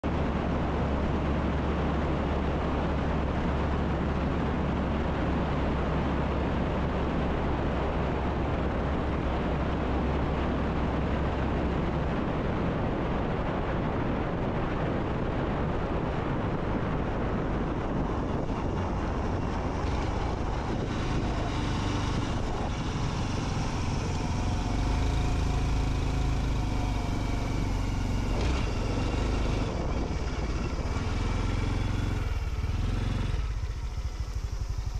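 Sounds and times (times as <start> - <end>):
wind rush on microphone: 0.0 - 34.9
motorcycle engine running: 15.7 - 34.9.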